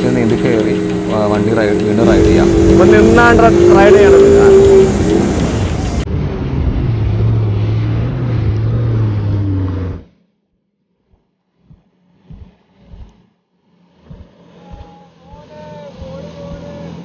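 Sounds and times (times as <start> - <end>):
faint low thumps: 0.0 - 6.0
jet ski engine running: 0.0 - 6.2, 12.1 - 17.0
rushing wind and water: 0.0 - 8.5.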